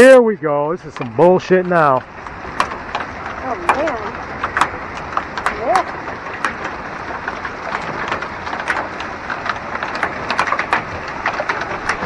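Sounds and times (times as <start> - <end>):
hailstones clicking: 0.0 - 12.0.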